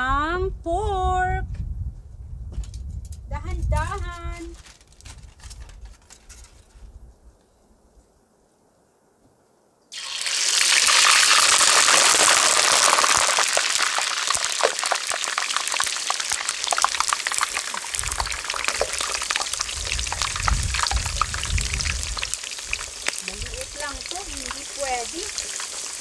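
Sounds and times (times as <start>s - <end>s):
hot oil sizzling and popping: 9.9s - 26.0s
low rumble: 19.3s - 22.4s.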